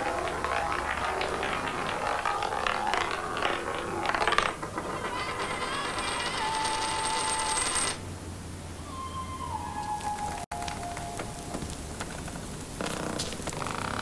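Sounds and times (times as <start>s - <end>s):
fine rapid rattle: 0.0s - 8.0s
thin steady high tones: 5.0s - 8.0s.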